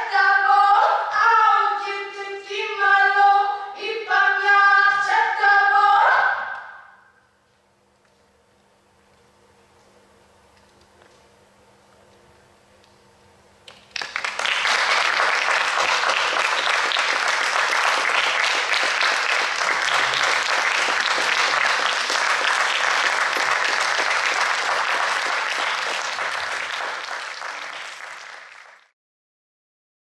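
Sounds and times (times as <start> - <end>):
audience applauding: 13.7 - 28.9.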